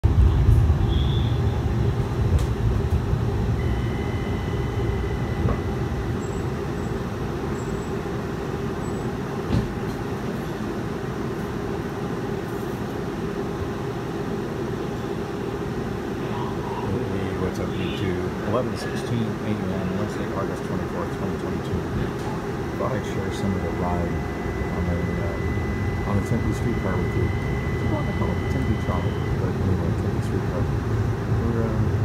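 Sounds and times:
streetcar cabin rumble: 0.0 - 32.0
faint thin whine: 22.4 - 30.7.

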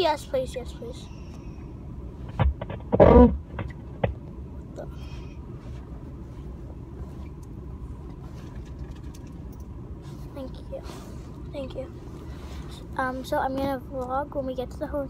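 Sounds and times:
car cabin rumble: 2.1 - 4.4.

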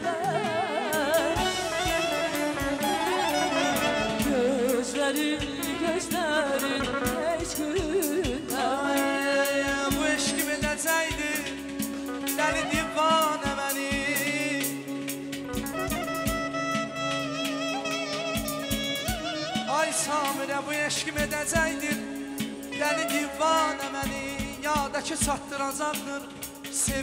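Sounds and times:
clarinet melody: 0.0 - 10.6, 12.0 - 14.6, 15.4 - 24.8
person singing wavering vocal: 0.0 - 14.9
drum kit beat: 0.0 - 27.0
keyboard: 0.0 - 27.0.

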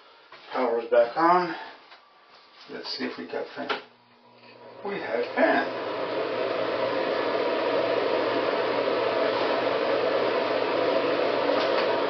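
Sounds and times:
exhaust fan air rushing: 4.6 - 12.0.

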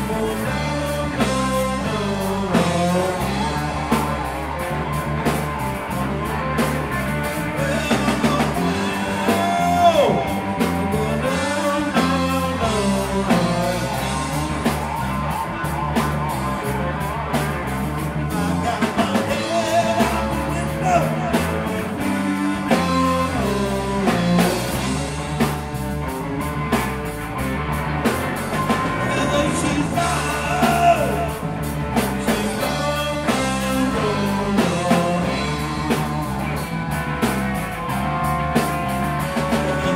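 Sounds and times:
person singing: 0.0 - 5.0, 6.2 - 16.0, 18.1 - 25.4, 28.7 - 36.6, 39.1 - 39.9
bass guitar: 0.0 - 39.9
drum kit: 0.0 - 39.9
electric guitars: 0.0 - 39.9.

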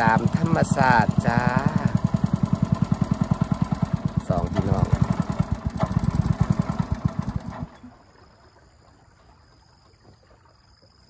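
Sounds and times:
boat engine putter: 0.0 - 10.6.

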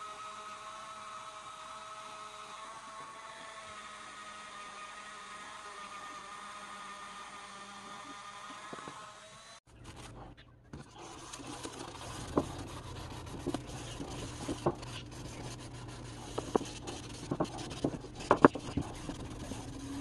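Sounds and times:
sanding sponge rubbing on steel: 11.1 - 20.0.

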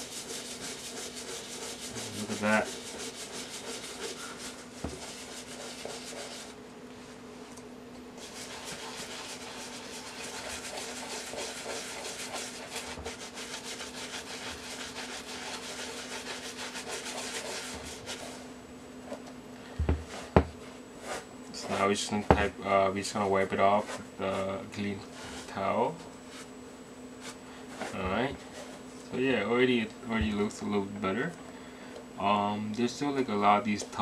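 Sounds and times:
brush scrubbing wet leather: 0.0 - 6.6, 8.2 - 18.4.

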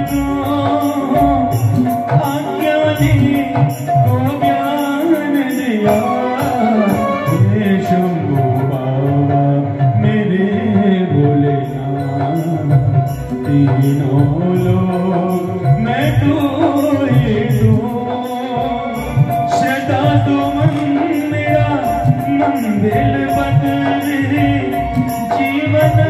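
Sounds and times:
drums: 0.0 - 26.0
jingling percussion: 0.0 - 26.0
keyboard: 0.0 - 26.0
person singing through loudspeakers: 0.0 - 26.0.

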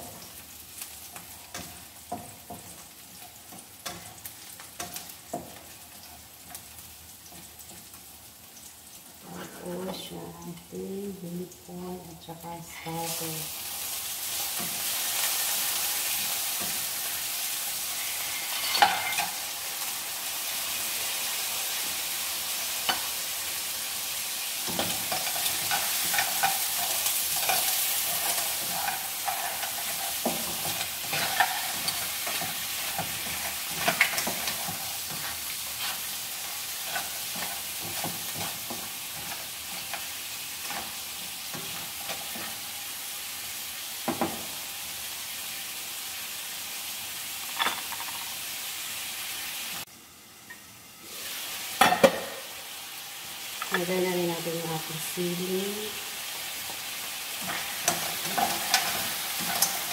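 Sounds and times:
seafood sizzling in frying pan: 0.0 - 59.9
wooden spatula scraping pan: 24.8 - 41.0.

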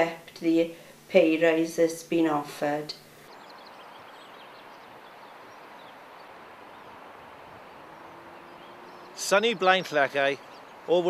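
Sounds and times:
outdoor background hiss: 0.0 - 11.0
distant birds chirping: 2.8 - 11.0.

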